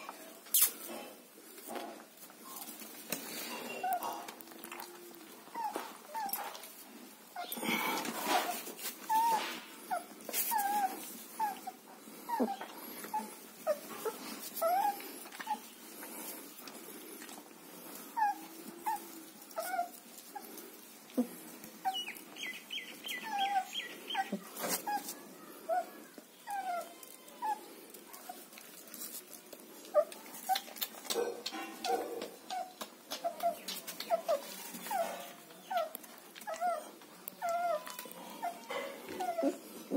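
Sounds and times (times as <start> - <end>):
puppies whining and yelping: 2.4 - 31.1, 31.8 - 39.9
puppies scuffling: 26.4 - 39.9.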